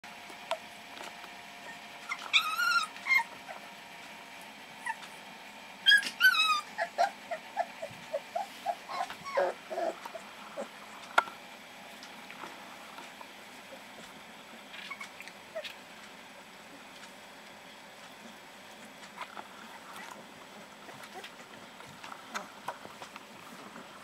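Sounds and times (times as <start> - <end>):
puppies squeaking and grunting: 1.6 - 3.8, 4.7 - 11.2, 13.6 - 15.9, 18.2 - 23.7
puppies whining and yelping: 1.6 - 3.8, 4.7 - 11.1, 14.7 - 15.8, 20.8 - 21.6.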